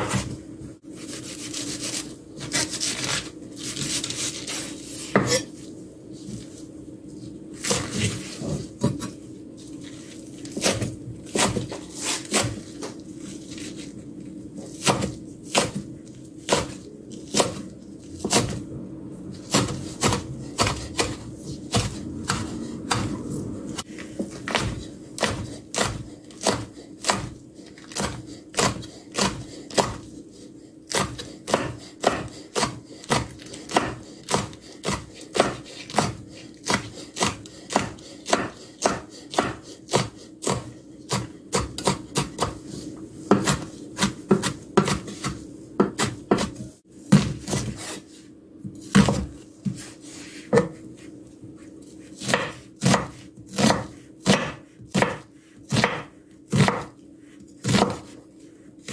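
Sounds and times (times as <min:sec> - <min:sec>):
knife chopping on wooden board: 0:14.8 - 0:15.8, 0:16.4 - 0:17.6, 0:19.5 - 0:23.2, 0:24.2 - 0:30.1, 0:30.9 - 0:42.6, 0:43.3 - 0:48.0, 0:48.6 - 0:49.9, 0:50.5 - 0:50.8, 0:52.2 - 0:56.9, 0:57.6 - 0:58.2.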